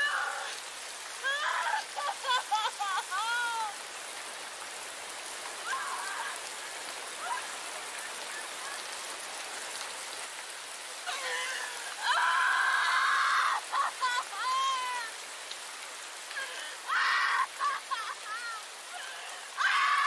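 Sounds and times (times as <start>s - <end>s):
woman screaming: 0.0s - 0.6s, 1.2s - 3.8s, 5.6s - 6.5s, 7.2s - 7.6s, 11.0s - 15.2s, 16.3s - 20.0s
steady rain: 0.0s - 20.0s.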